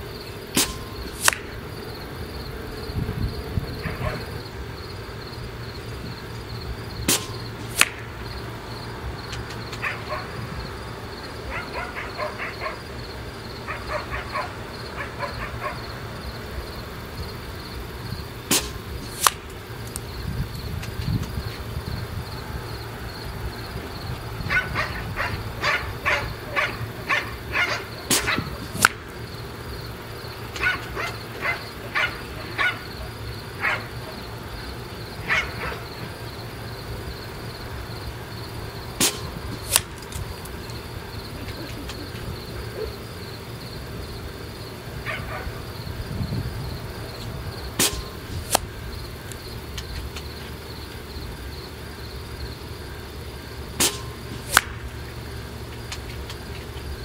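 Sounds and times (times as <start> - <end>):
insect drone: 0.0 - 57.0
air rifle shots: 0.5 - 1.6, 7.0 - 8.1, 18.5 - 19.5, 27.6 - 29.2, 39.0 - 40.1, 47.8 - 48.7, 53.8 - 54.9
pellet striking target: 0.5 - 1.6, 7.0 - 8.1, 18.5 - 19.6, 28.1 - 29.1, 39.0 - 40.1, 47.8 - 48.7, 53.8 - 54.9
dog barking: 3.8 - 4.4, 9.8 - 10.3, 11.5 - 12.8, 13.7 - 15.8, 24.5 - 28.5, 30.6 - 34.2, 35.2 - 36.0, 42.7 - 43.0, 45.0 - 45.6.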